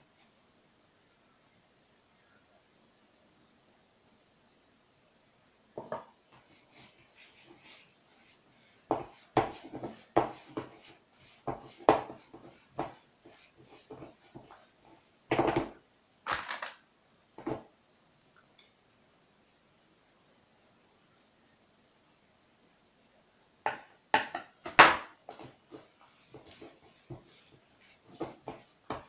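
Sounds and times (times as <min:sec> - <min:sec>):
kneading mixture by hand: 0:06.3 - 0:15.8, 0:25.1 - 0:29.0
spoon knocking plastic bowl: 0:23.7 - 0:25.5.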